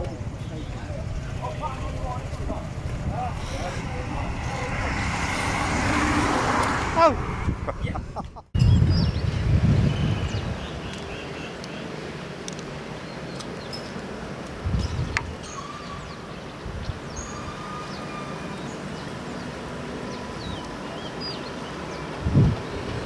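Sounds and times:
steady low rumble: 0.0s - 5.5s
wind gust on microphone: 1.2s - 11.2s, 14.6s - 17.6s, 22.0s - 23.0s.

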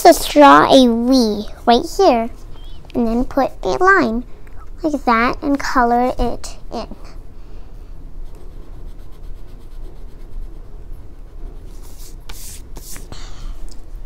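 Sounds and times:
pencil scribbling on paper: 8.2s - 13.1s.

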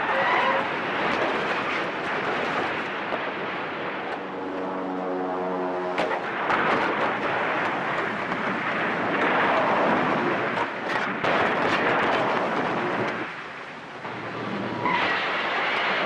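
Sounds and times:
sharp cracks and clatters: 0.0s - 4.7s, 6.0s - 16.0s
loud rumbling roar: 3.7s - 7.8s.

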